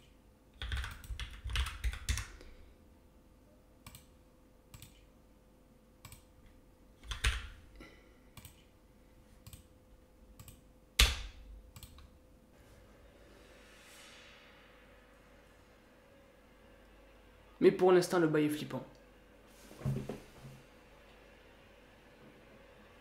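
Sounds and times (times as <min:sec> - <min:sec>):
typing on a keyboard: 0:00.6 - 0:02.4, 0:07.0 - 0:07.5.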